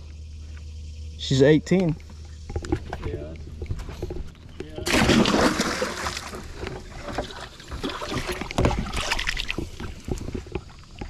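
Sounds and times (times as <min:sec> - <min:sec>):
fish splashing in water: 0:04.8 - 0:10.7.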